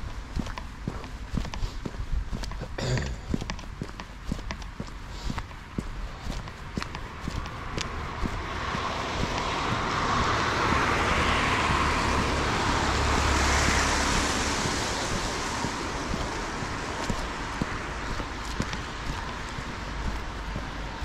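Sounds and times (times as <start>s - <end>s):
car passing: 4.9s - 21.0s.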